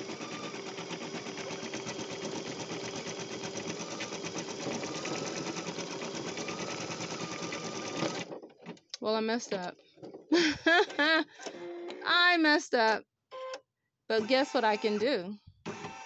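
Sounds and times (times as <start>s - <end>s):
embroidery machine stitching: 0.0s - 8.4s, 14.1s - 16.0s.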